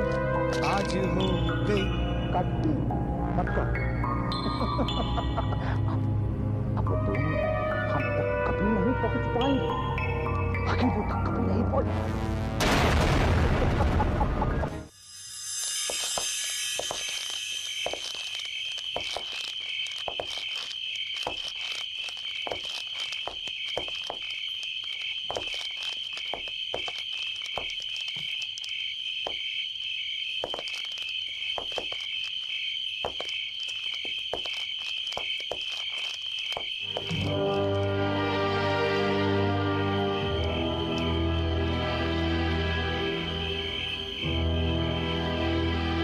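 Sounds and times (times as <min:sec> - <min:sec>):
insect chirping trill: 0:14.9 - 0:37.8, 0:38.9 - 0:46.0.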